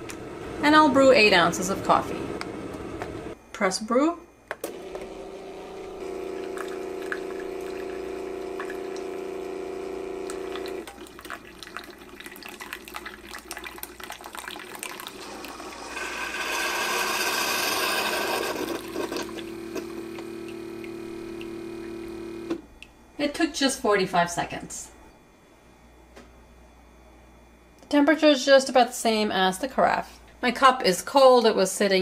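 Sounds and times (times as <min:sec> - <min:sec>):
coffee machine hum: 0:00.0 - 0:03.4, 0:04.5 - 0:22.7
coffee streaming into a mug: 0:05.8 - 0:22.1.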